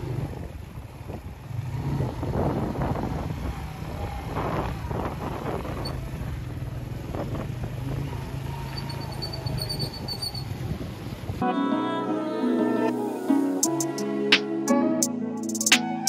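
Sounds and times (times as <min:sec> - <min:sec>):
motorcycle engine running: 0:00.0 - 0:11.4
wind and road noise: 0:00.0 - 0:11.4.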